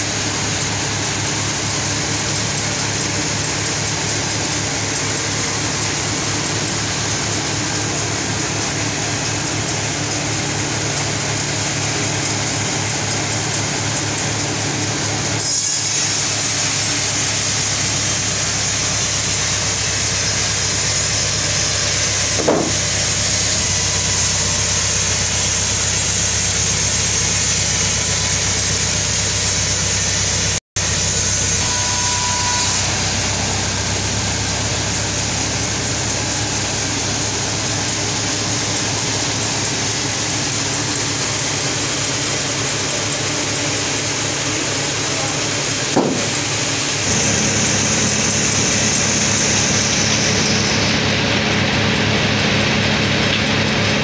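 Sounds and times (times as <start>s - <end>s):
band saw machine drone: 0.0s - 54.0s
saw cutting log: 0.0s - 54.0s
short knock: 22.4s - 22.8s, 45.9s - 46.4s.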